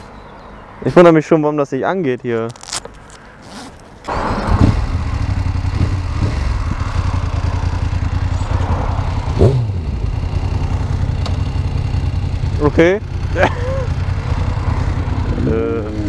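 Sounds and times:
motorcycle engine starting and idling: 4.0s - 16.0s.

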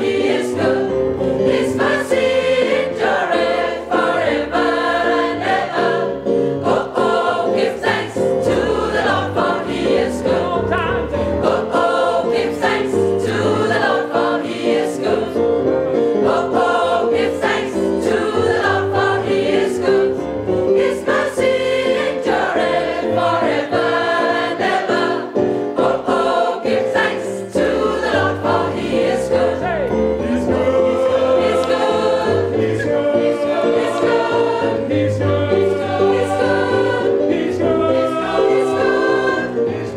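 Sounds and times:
gospel choir singing: 0.0s - 39.9s
singers clapping hands: 31.5s - 31.9s.

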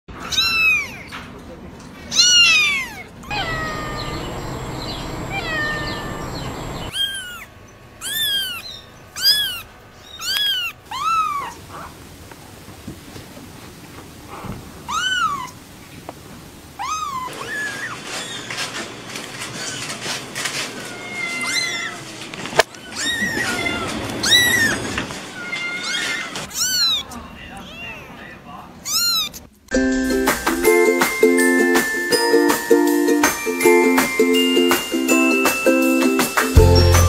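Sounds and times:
kittens mewing: 2.1s - 11.9s, 22.7s - 28.2s, 28.8s - 29.6s.

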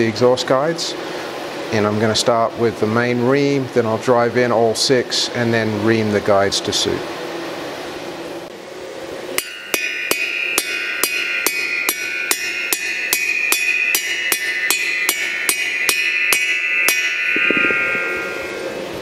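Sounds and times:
hammer blows on metal: 9.4s - 19.0s.

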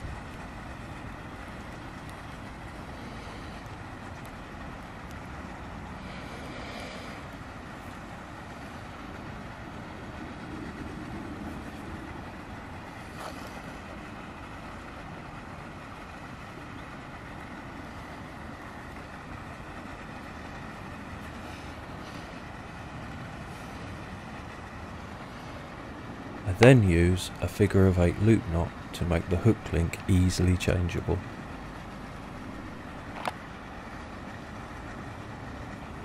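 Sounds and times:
rumbling hiss: 0.0s - 36.0s
faint clicks: 3.6s - 5.2s.

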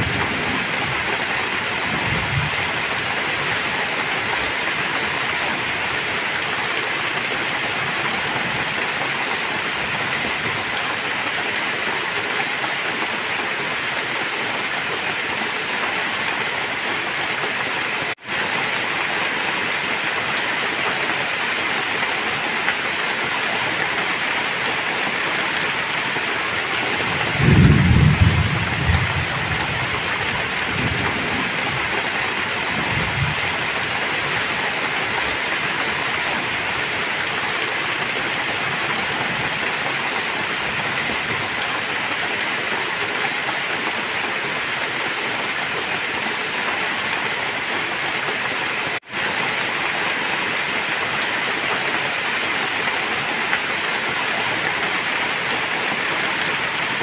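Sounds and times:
low rumble of thunder: 0.0s - 3.0s, 27.1s - 31.9s
heavy rain: 0.0s - 57.0s.

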